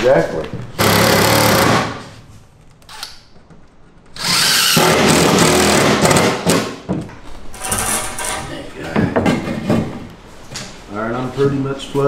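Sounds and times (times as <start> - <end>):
power drill into wood: 4.2 - 6.5.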